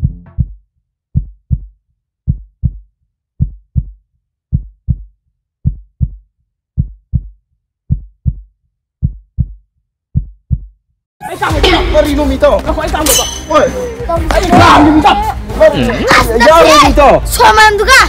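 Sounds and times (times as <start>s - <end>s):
heartbeat double thumps: 0.0s - 10.8s.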